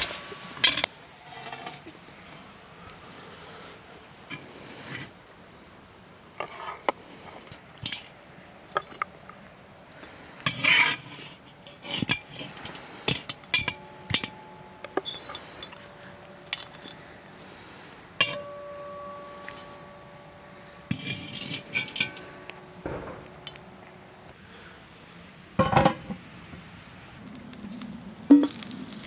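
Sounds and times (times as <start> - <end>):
metal skimmer scraping a pot: 10.4 - 17.6, 18.2 - 22.8
metal pot ringing: 13.2 - 17.0, 18.2 - 23.7.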